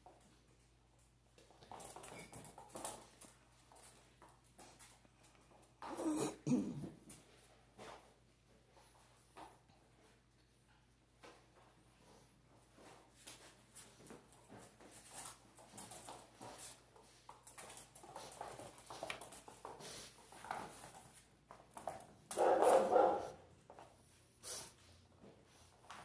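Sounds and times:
puppy paws clicking and scuffling: 0.0s - 6.2s, 6.8s - 26.0s
puppy barking: 22.4s - 23.4s.

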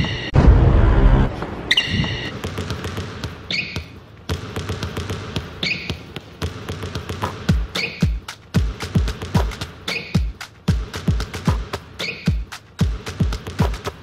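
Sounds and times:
sneaker squeaks: 0.0s - 0.4s, 1.7s - 2.4s, 3.2s - 4.0s, 5.4s - 6.2s, 7.2s - 8.4s, 9.4s - 10.4s, 12.0s - 12.6s
basketballs bouncing on hardwood floor: 2.0s - 11.6s.

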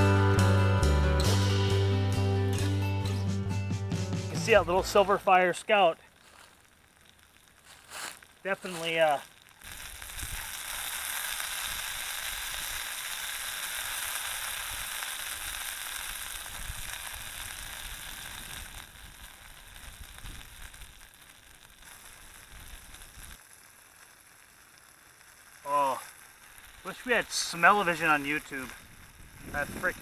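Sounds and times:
potatoes sizzling in a pan: 6.1s - 30.0s.

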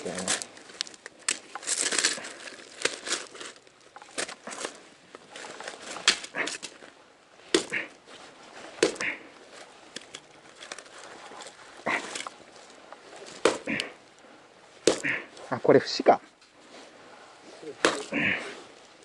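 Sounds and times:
hatchet chopping firewood: 7.5s - 7.9s, 8.8s - 9.2s, 13.3s - 13.9s, 14.8s - 15.3s, 17.8s - 18.3s.

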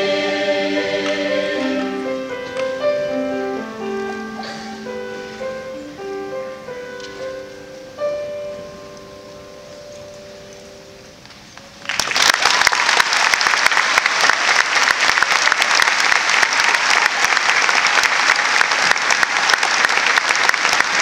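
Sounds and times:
audience applause: 11.8s - 21.0s.

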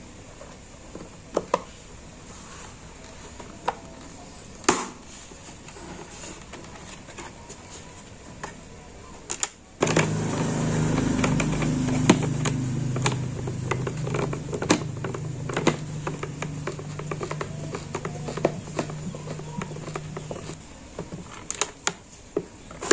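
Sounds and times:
steady low hum: 9.8s - 21.4s.

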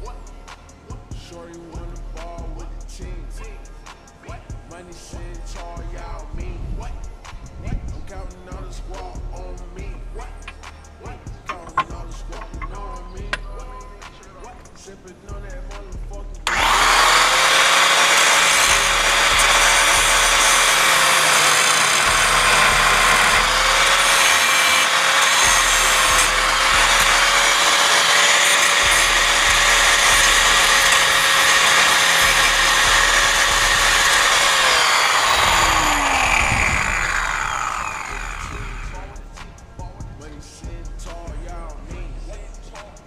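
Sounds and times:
angle grinder grinding: 16.5s - 39.2s
grinder disc winding down: 16.5s - 39.2s.

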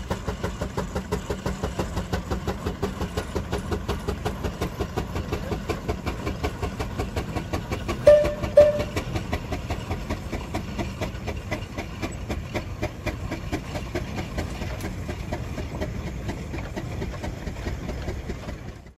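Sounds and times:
steam engine chuffing: 0.0s - 19.0s.

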